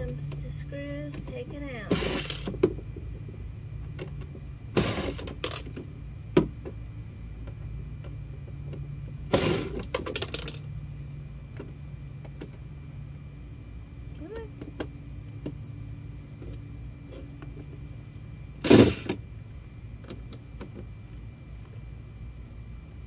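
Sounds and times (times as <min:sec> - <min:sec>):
steady low hum: 0:00.0 - 0:23.0
cordless drill running: 0:01.9 - 0:02.5, 0:04.8 - 0:05.5, 0:09.3 - 0:09.9.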